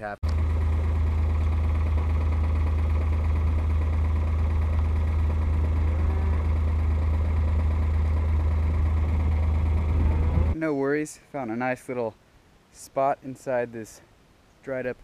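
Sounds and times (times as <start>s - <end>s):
utility vehicle engine running: 0.2s - 10.6s.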